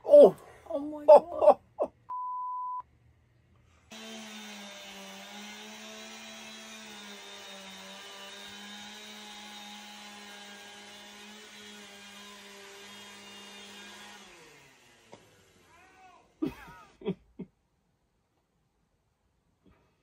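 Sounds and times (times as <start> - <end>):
power saw cutting wood panel: 3.9 - 16.3.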